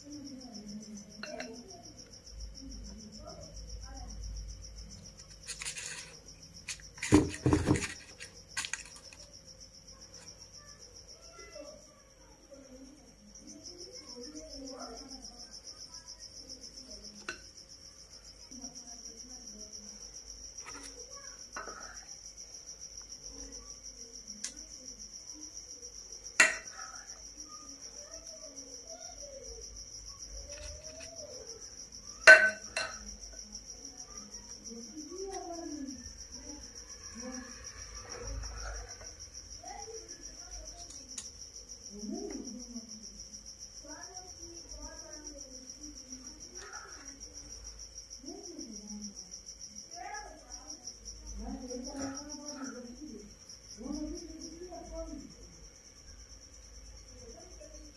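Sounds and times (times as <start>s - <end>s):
cricket chirping: 0.0s - 57.9s.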